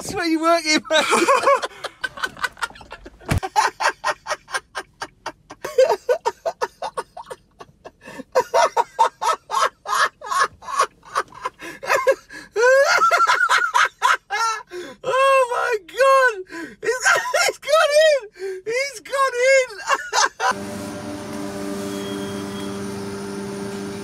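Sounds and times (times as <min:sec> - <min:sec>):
man laughing breathlessly: 0:00.9 - 0:15.0.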